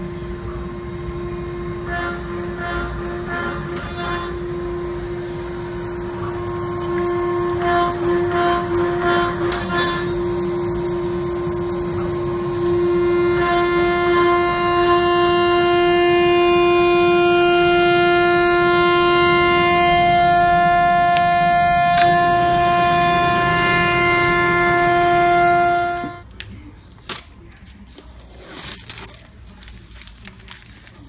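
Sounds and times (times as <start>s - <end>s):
router spindle high whine: 0.0s - 26.2s
dust extraction rushing: 11.9s - 26.2s.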